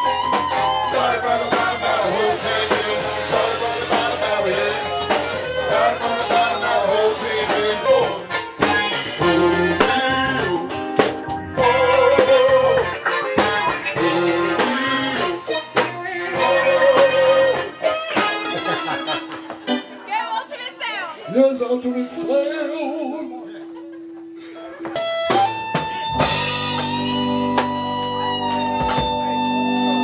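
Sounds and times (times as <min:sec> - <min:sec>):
drum kit: 0:00.0 - 0:19.9, 0:24.9 - 0:30.0
electric guitar: 0:00.0 - 0:20.1, 0:21.6 - 0:30.0
man singing: 0:00.8 - 0:13.0, 0:13.9 - 0:17.8, 0:21.2 - 0:23.8.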